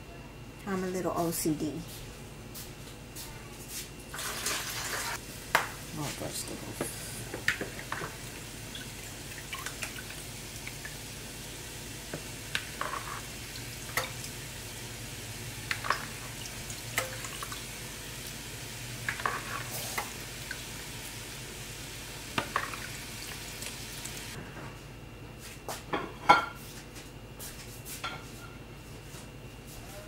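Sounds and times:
food sizzling in a skillet: 4.1s - 24.4s.

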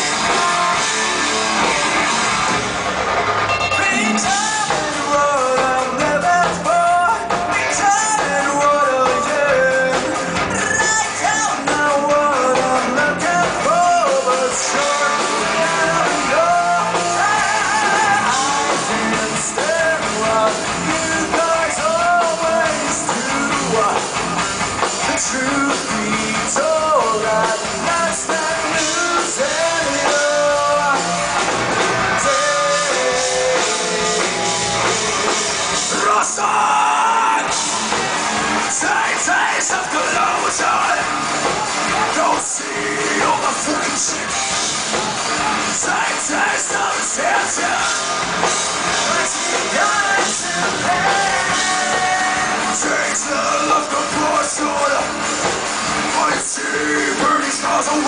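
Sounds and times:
sung lead vocal: 0.0s - 2.7s, 3.5s - 58.0s
bass guitar: 0.0s - 58.0s
drums: 0.0s - 58.0s
electric guitars: 0.0s - 58.0s.

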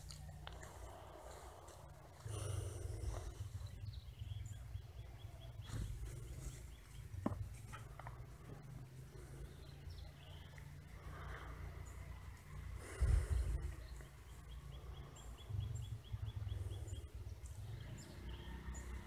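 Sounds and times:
bird chirping: 0.0s - 19.0s
wind rumble on microphone: 12.8s - 14.0s.

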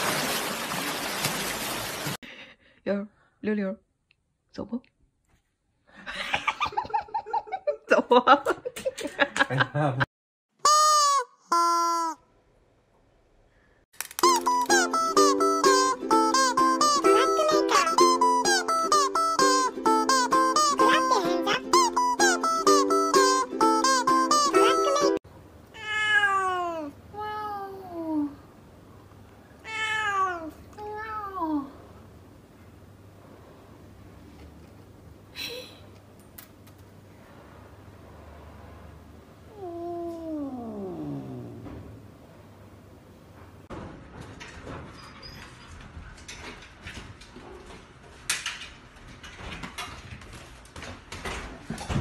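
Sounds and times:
cat meowing: 25.8s - 27.8s, 29.6s - 31.4s.

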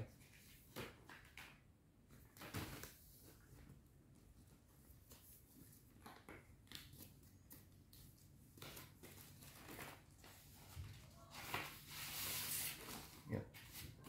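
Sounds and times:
paper sliding and rustling: 9.6s - 13.2s.

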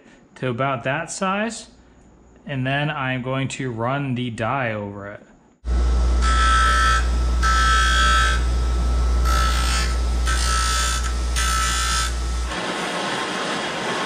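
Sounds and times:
bench grinder humming: 5.6s - 14.0s
plastic grinding with high whine: 5.7s - 12.5s.

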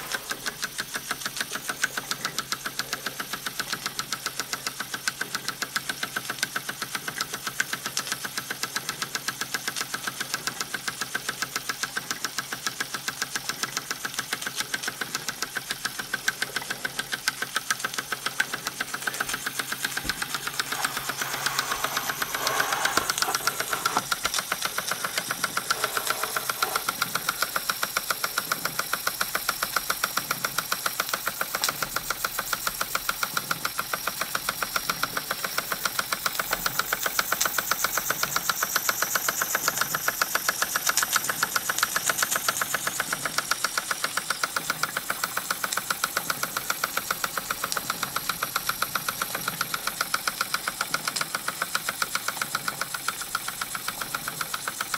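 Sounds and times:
steam hissing: 0.0s - 2.2s, 18.1s - 32.0s
toy steam engine chuffing: 0.0s - 54.9s.

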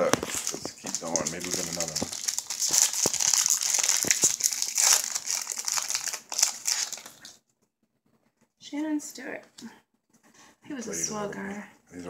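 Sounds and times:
foil wrapper crinkling: 0.0s - 7.4s.

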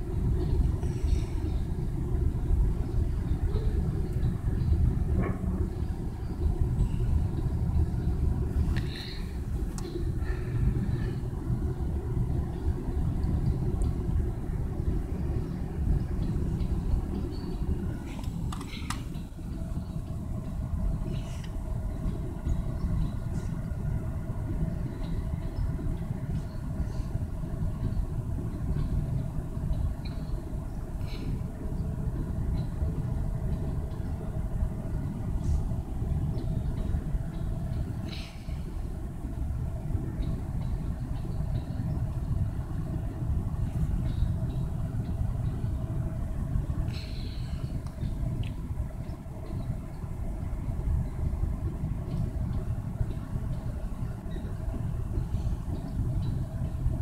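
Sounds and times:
faint steady hum: 0.0s - 57.0s
train cars rumbling on rails: 0.0s - 57.0s
light ticks: 9.7s - 10.0s.

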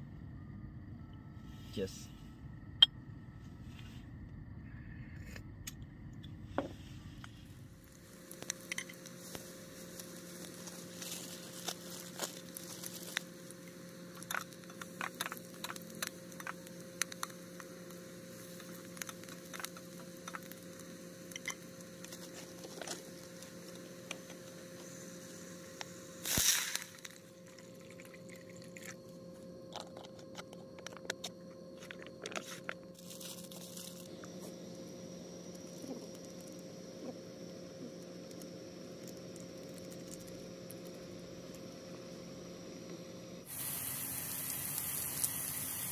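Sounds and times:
onions frying and crackling: 7.8s - 27.3s, 43.4s - 45.9s
water poured into hot pot hissing: 26.2s - 28.9s, 43.5s - 45.9s.

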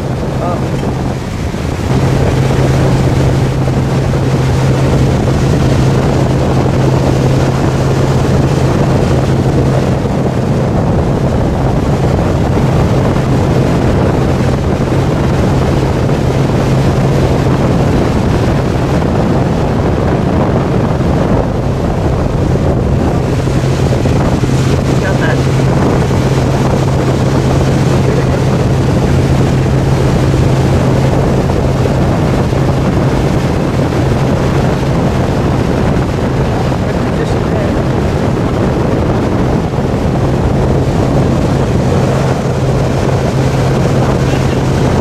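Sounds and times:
boat engine droning: 0.0s - 45.0s
wake rushing: 0.0s - 45.0s
wind buffeting microphone: 0.0s - 45.0s.

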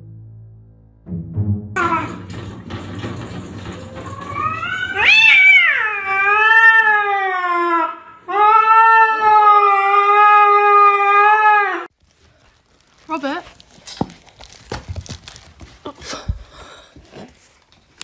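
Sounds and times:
cat yowling: 4.3s - 11.9s.

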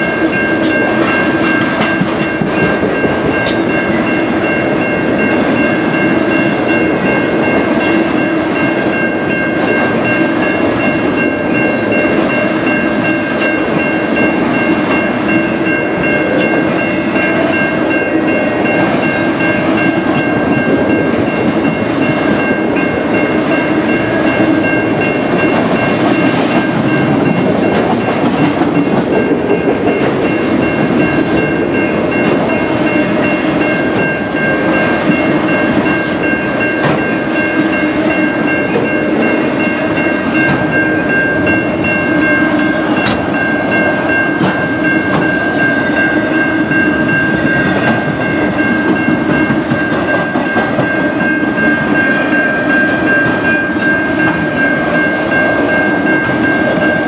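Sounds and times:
rail clicks: 0.0s - 57.0s
high-pitched ringing tones: 28.8s - 57.0s.

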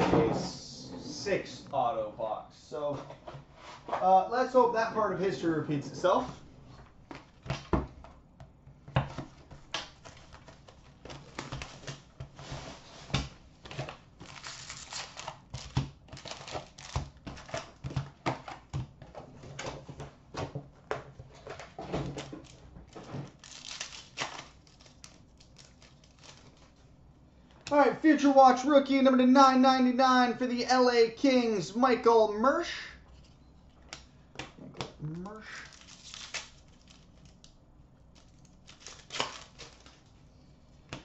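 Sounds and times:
foil card packs crinkling: 13.5s - 20.0s, 21.2s - 26.9s, 35.4s - 40.2s.

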